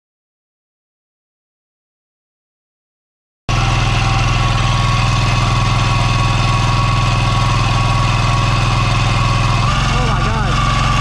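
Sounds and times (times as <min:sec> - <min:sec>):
diesel engine running: 0:03.5 - 0:11.0.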